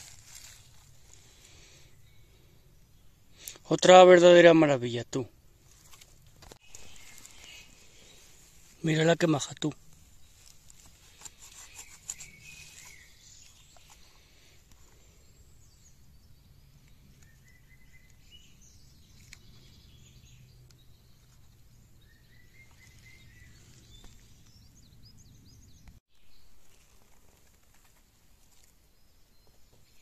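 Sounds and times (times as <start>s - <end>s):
bird chirps: 6.6s - 8.4s, 10.0s - 27.0s.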